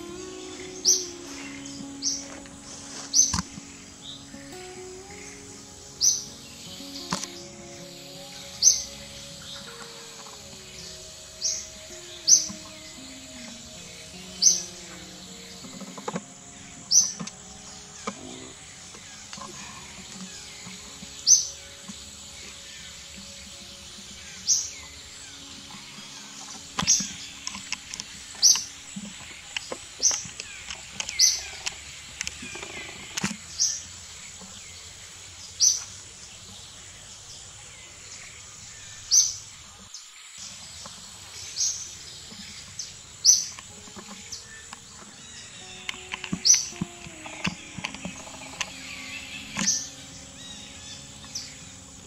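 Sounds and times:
bird chirping: 0.0s - 52.0s
soft background music: 0.0s - 52.0s.

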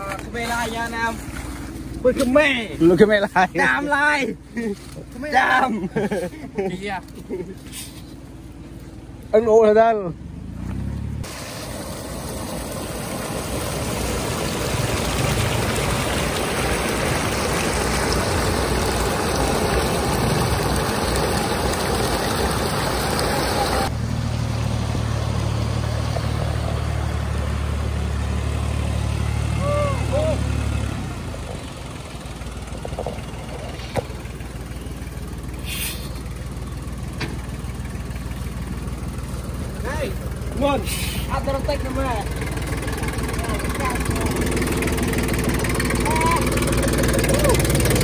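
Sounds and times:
vehicle engine running: 0.0s - 48.0s
brief hiss: 7.7s - 8.2s, 35.6s - 36.2s, 40.8s - 41.3s.

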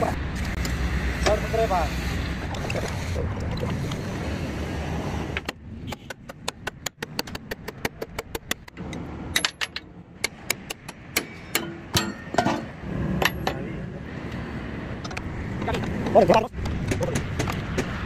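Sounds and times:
hammer striking steel: 9.3s - 13.6s.

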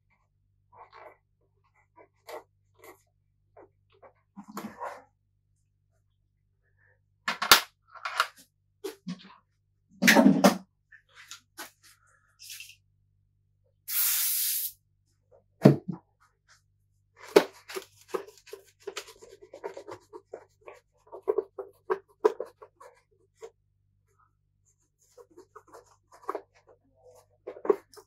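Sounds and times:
aerosol spray hiss: 13.9s - 14.8s.

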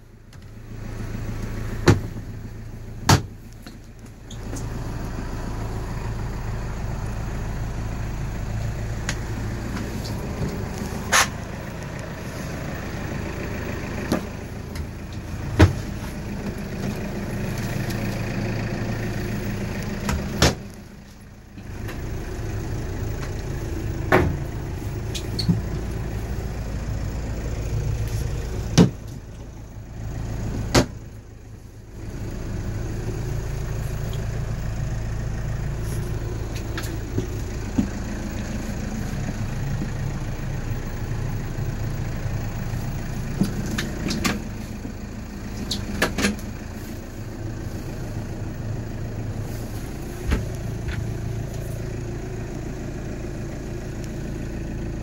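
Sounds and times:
diesel engine idling: 0.0s - 55.0s
sharp knocks and clunks: 1.8s - 2.2s, 3.0s - 3.8s, 15.5s - 16.0s, 20.0s - 20.7s, 24.0s - 24.4s, 28.7s - 29.2s.

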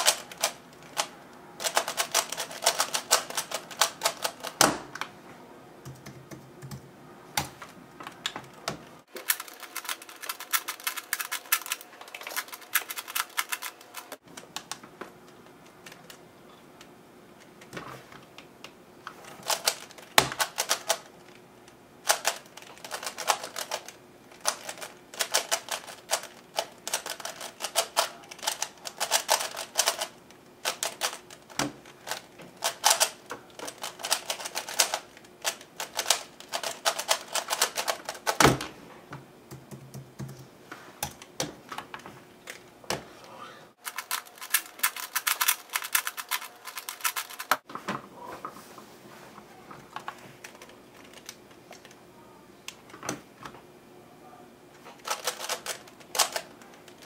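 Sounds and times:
puzzle cube plastic clicking: 0.0s - 5.1s, 9.2s - 16.2s, 43.8s - 47.6s, 55.0s - 57.0s.

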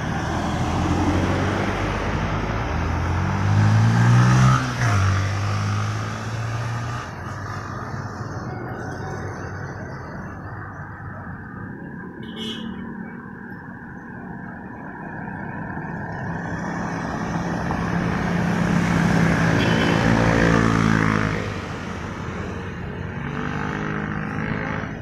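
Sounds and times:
vehicle engine approaching: 0.0s - 12.2s
street traffic: 0.0s - 25.0s.

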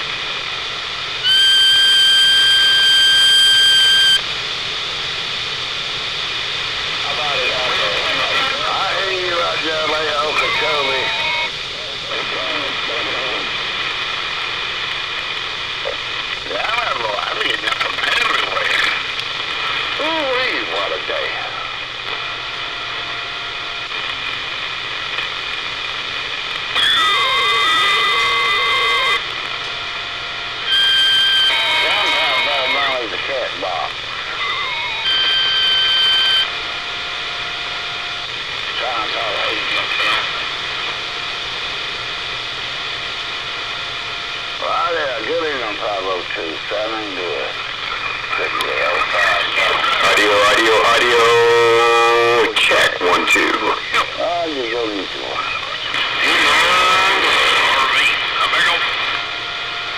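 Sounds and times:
radio receiver hiss: 0.0s - 59.9s
high whistle-like tone: 1.2s - 4.2s.

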